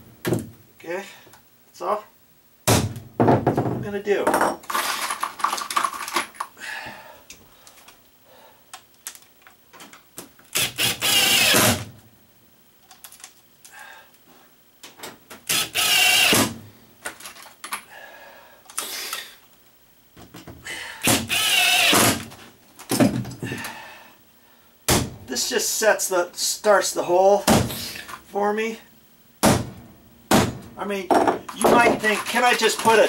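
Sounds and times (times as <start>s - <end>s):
impact drill driving screws: 10.5s - 11.9s, 15.5s - 16.6s, 21.0s - 22.3s.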